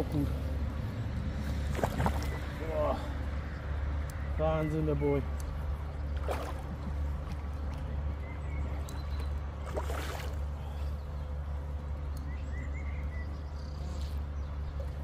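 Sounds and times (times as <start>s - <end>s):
fish splashing in water: 1.6s - 2.6s, 6.2s - 6.8s, 9.6s - 10.5s.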